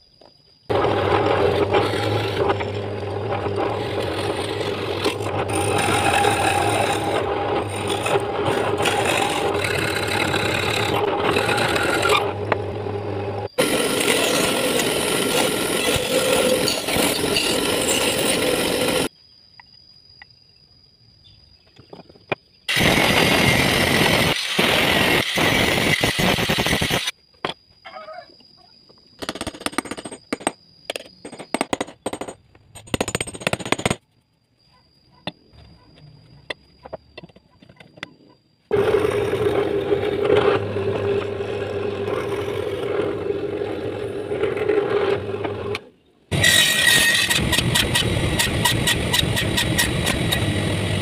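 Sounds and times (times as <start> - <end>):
power drill boring into wood: 0.7 - 12.9, 22.7 - 27.1, 38.7 - 51.0
angle grinder cutting steel: 0.7 - 19.1, 38.7 - 51.0
saw cutting wood: 0.7 - 19.1, 38.7 - 51.0.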